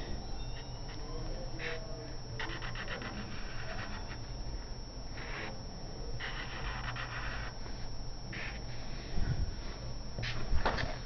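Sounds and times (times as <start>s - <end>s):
marker scratching on paper: 0.5s - 4.3s, 5.1s - 5.6s, 6.2s - 8.7s.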